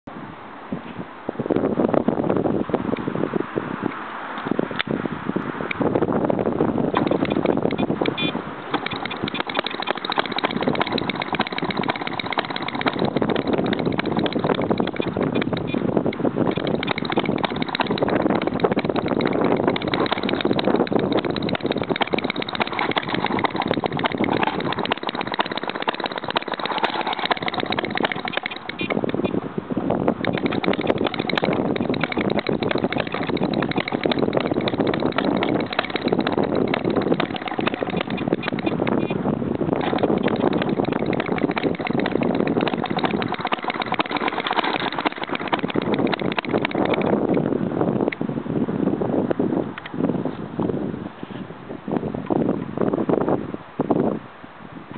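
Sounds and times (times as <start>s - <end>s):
single-cylinder gas engine clicking: 6.9s - 29.4s, 30.2s - 47.4s.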